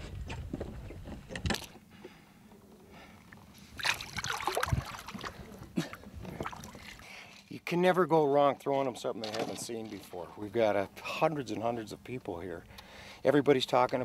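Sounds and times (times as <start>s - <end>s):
water splashing and sloshing: 2.5s - 7.5s.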